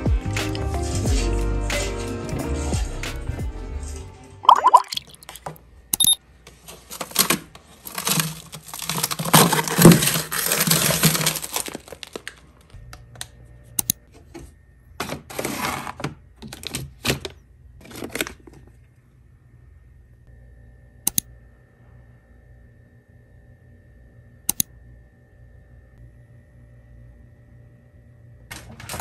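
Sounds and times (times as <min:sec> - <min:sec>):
plastic packaging crinkling: 0:06.6 - 0:12.7.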